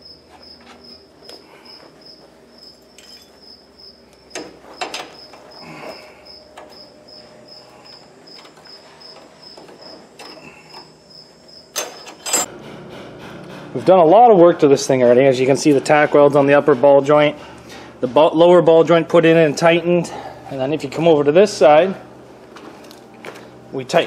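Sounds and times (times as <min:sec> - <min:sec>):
cricket chirping: 0:00.0 - 0:12.2
metal clinks and knocks: 0:03.0 - 0:03.4.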